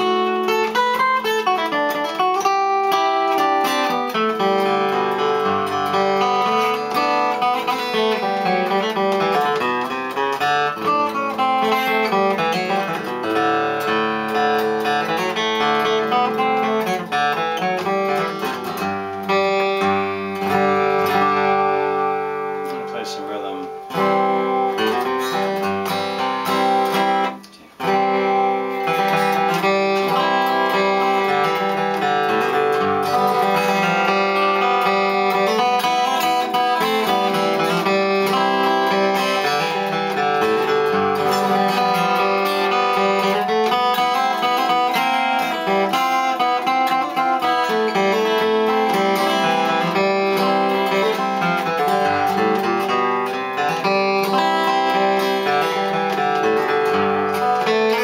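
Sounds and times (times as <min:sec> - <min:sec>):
acoustic guitar melody: 0:00.0 - 0:58.0.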